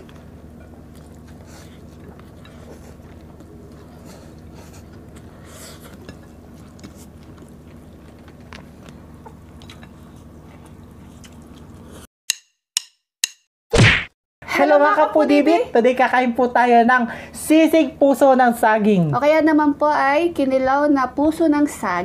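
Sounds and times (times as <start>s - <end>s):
steady low hum: 0.0s - 12.1s
chewing and lip smacks: 0.1s - 12.0s.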